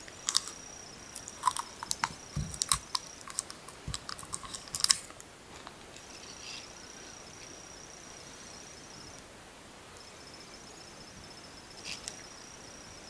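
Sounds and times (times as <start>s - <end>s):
wrapper clicks and crackles: 0.0s - 0.6s, 1.2s - 5.2s
cricket trill: 0.0s - 5.2s, 5.9s - 9.2s, 9.9s - 13.0s.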